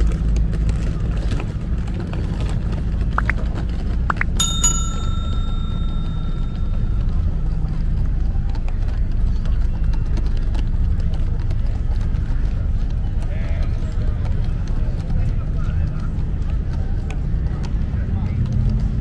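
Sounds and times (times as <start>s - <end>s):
low rumble of surroundings: 0.0s - 19.0s
small metal bell ringing: 4.3s - 7.4s.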